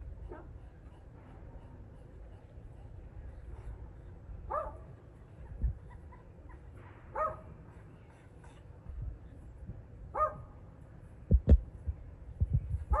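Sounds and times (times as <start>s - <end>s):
bark-like animal calls: 4.5s - 4.9s, 5.9s - 7.5s.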